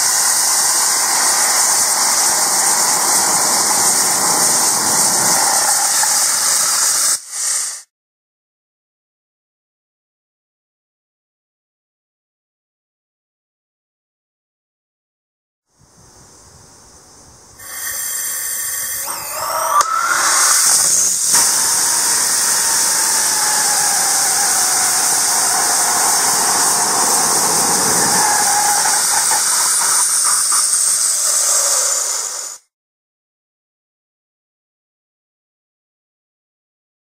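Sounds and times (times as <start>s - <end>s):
rising whistle: 0.0s - 6.9s, 17.6s - 32.5s
rocket engine hissing: 0.0s - 7.9s, 17.6s - 32.7s.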